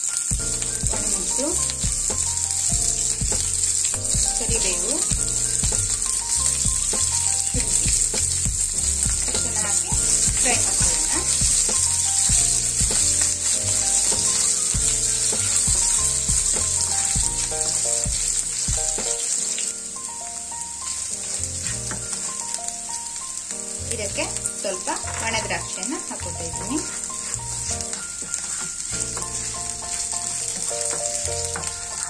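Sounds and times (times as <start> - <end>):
background music: 0.0 - 32.0
oil sizzling in a frying pan: 0.0 - 32.0
wooden spatula scraping a pan: 21.1 - 22.5, 25.0 - 32.0.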